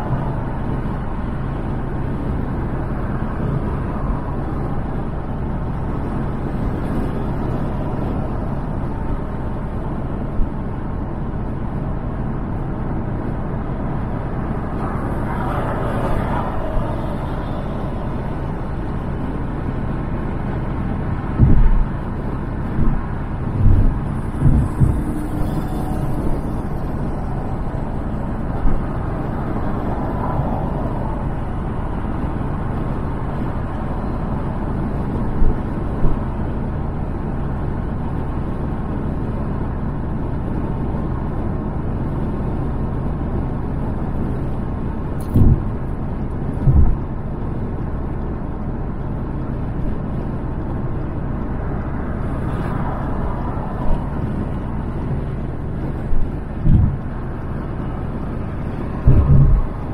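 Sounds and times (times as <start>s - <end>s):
car cruising road noise: 0.0s - 59.9s
short low thumps: 21.4s - 21.9s, 22.8s - 25.0s, 45.3s - 45.7s, 46.6s - 47.0s, 56.6s - 57.1s, 59.0s - 59.8s.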